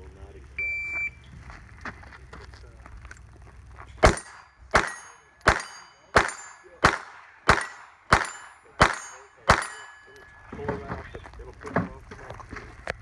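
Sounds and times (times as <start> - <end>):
handgun shots: 4.0 - 10.0
steel target ringing: 4.0 - 10.6.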